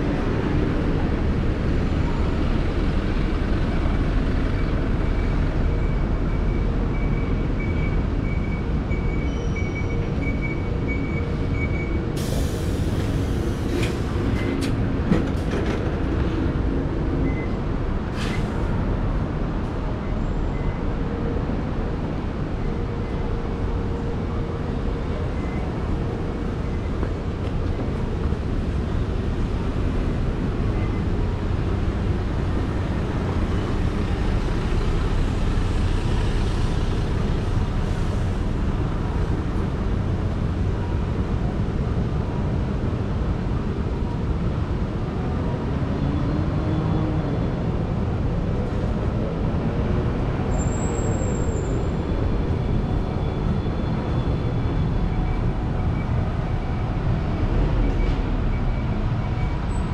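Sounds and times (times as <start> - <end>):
brief high squeak: 50.5 - 51.9.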